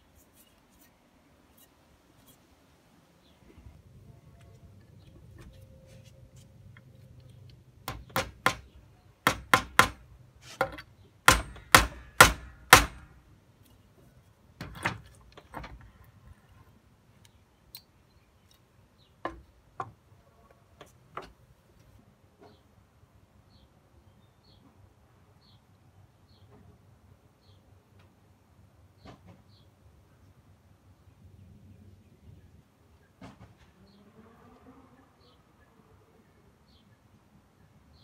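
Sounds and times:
hammer driving a nail into wood: 7.8 - 10.0, 10.6 - 13.1.

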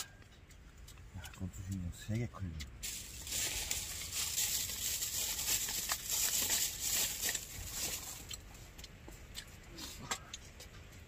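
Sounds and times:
plastic wrapper crinkling: 2.8 - 8.4.

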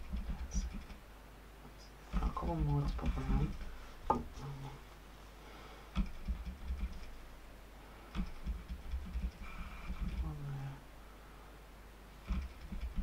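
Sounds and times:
low knocks: 2.1 - 4.5.

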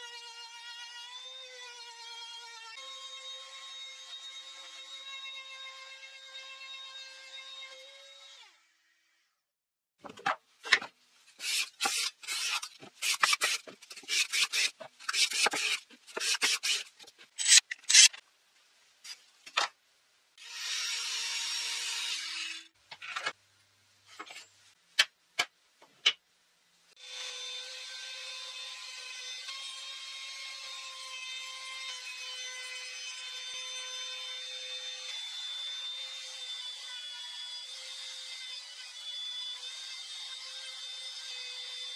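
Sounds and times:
wood rubbing and scraping: 10.0 - 18.2.

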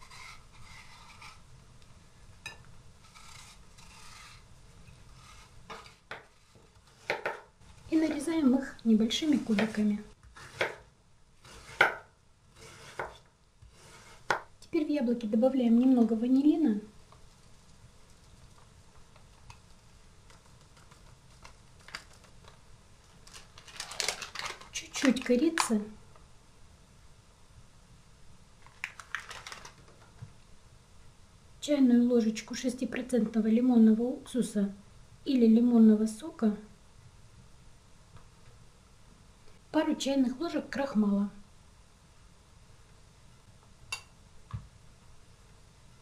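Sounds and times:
knife scraping apple peel: 0.0 - 1.4, 3.0 - 4.5, 5.1 - 7.2, 9.2 - 10.8, 11.4 - 14.4
paper sachets tapping and clicking: 23.2 - 25.7, 28.7 - 30.0.

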